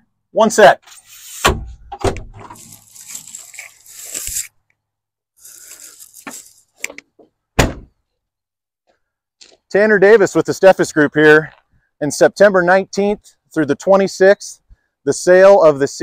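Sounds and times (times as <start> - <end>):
rattling and scuffing: 0.9 - 4.5
cab door opening with a knock: 7.6 - 7.9.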